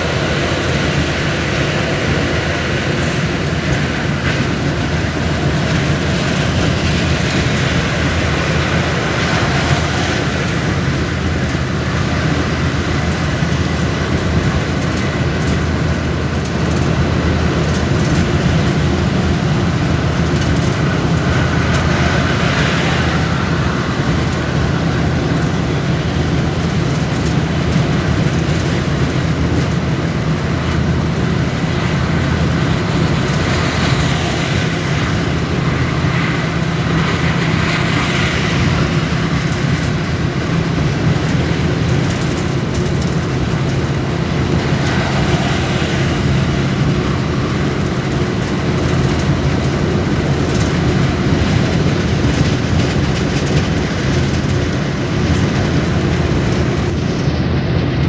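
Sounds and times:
tyre and wind hiss: 0.0s - 58.0s
vehicle road rumble: 0.0s - 58.0s.

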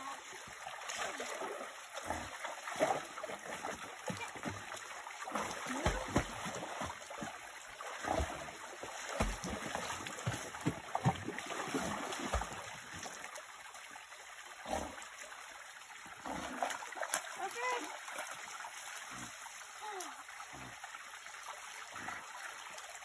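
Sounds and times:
creek running: 0.0s - 23.0s
dog splashing in water: 0.8s - 13.0s.

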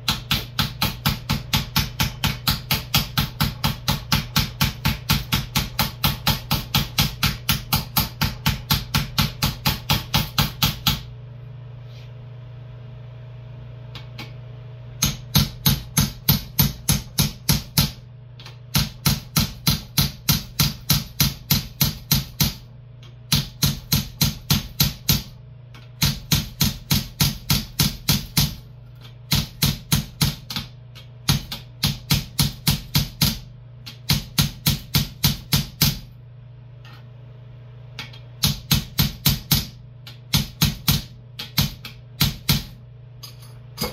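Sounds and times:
hammer striking steel: 15.0s - 18.0s, 38.4s - 43.9s.

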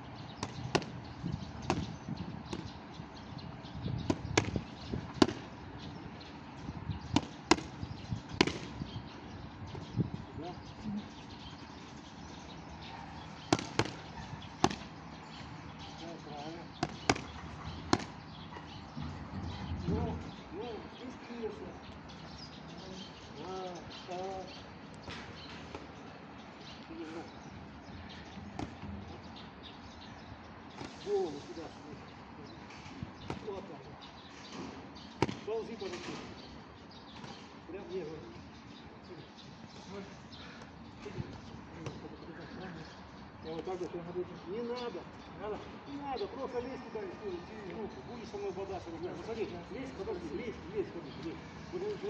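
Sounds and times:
small birds chirping: 0.0s - 52.0s
boxing gloves slapping mitts: 0.4s - 0.9s, 1.6s - 1.9s, 4.0s - 5.5s, 7.2s - 7.8s, 8.4s - 8.7s, 13.5s - 14.9s, 16.8s - 18.2s, 28.6s - 28.8s, 35.2s - 35.5s
boxing glove smacking mitt: 4.1s - 4.6s, 7.2s - 7.7s, 8.4s - 8.7s, 13.5s - 14.0s, 16.8s - 17.3s, 17.9s - 18.2s, 35.2s - 35.5s
short bird calls: 22.2s - 43.5s.

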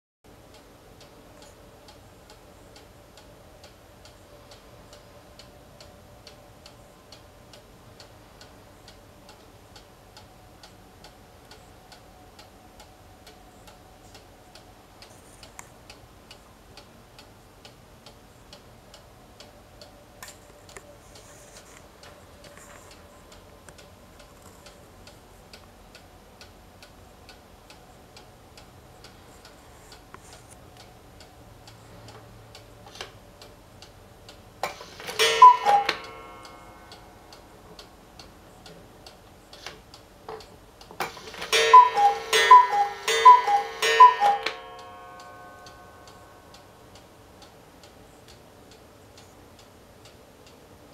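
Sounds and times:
clock ticking: 0.3s - 50.9s
two-note cuckoo call: 35.2s - 36.8s, 41.5s - 46.3s.

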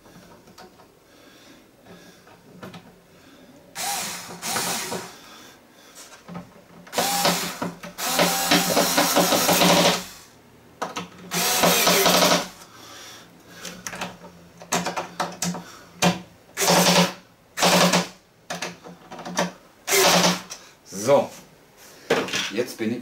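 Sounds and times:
electric screwdriver driving screws: 3.8s - 5.2s, 6.9s - 10.2s, 11.3s - 12.5s, 16.6s - 18.1s, 19.9s - 20.5s.

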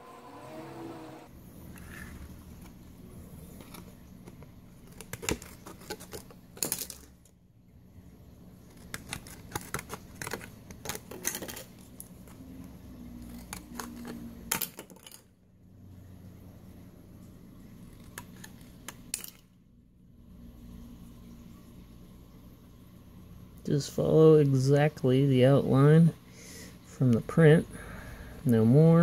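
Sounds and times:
plastic packaging crackling: 2.0s - 7.3s, 8.6s - 12.4s
scissors cutting plastic: 3.4s - 7.1s, 8.7s - 12.4s, 13.2s - 15.2s, 17.8s - 19.4s.

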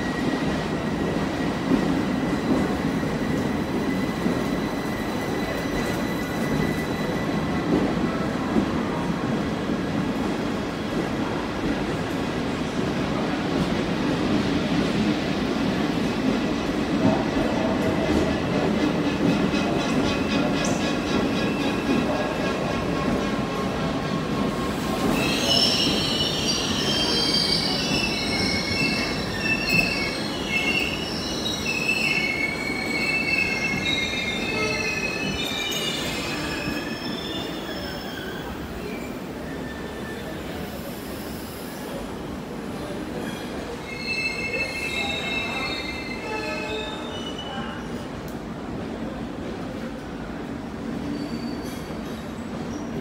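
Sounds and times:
train wheels squealing: 0.0s - 8.5s, 19.1s - 42.0s, 42.8s - 48.0s, 51.0s - 53.0s.

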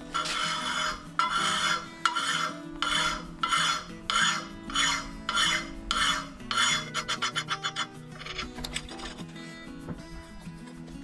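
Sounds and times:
file rasping on steel: 0.0s - 8.5s
faint background music: 0.0s - 11.0s.

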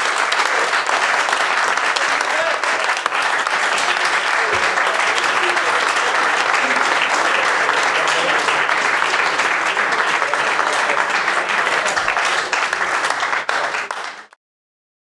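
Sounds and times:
crowd applauding: 0.0s - 14.4s.

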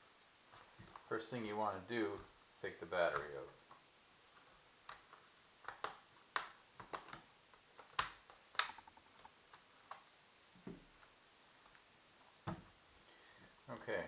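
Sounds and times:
plastic laptop case clicking: 4.9s - 10.0s.

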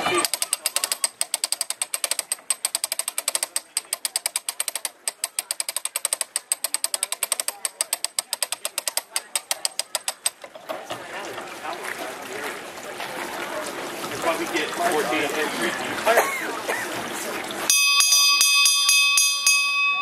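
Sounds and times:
ratchet pawl clicking rapidly: 0.0s - 10.5s.

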